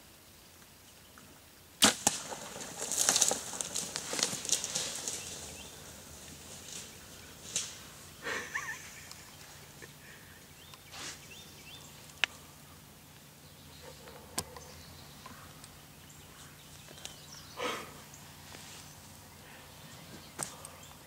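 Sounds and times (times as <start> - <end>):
twig snap: 1.8 - 5.5, 6.5 - 7.8
sharp crack: 1.8 - 8.0
animals rustling through dry brush: 1.8 - 12.6, 13.7 - 21.0.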